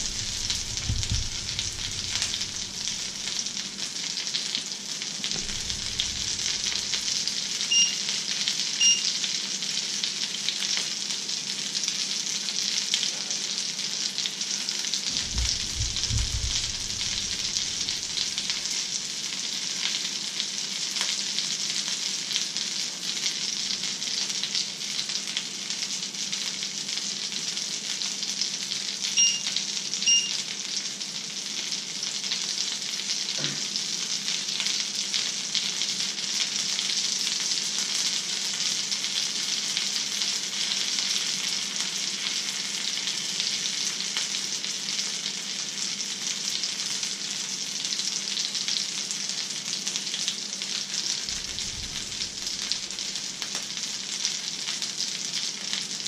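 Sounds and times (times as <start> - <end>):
food sizzling in a pan: 0.0 - 56.0
short electronic beeps: 7.7 - 8.0, 8.8 - 9.1, 29.2 - 29.5, 30.1 - 30.4.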